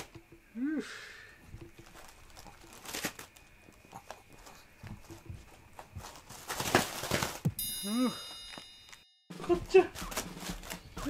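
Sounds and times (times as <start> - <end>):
foil balloon crinkling: 1.4 - 7.6, 8.5 - 11.0.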